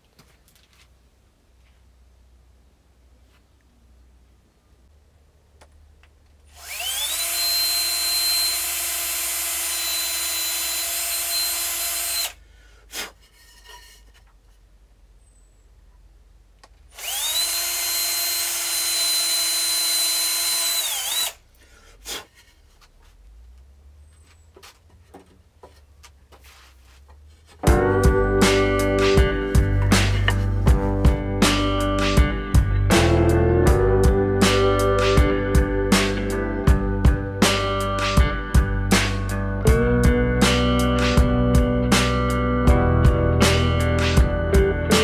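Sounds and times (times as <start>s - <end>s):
power drill whine: 6.5s - 12.4s, 16.9s - 21.4s.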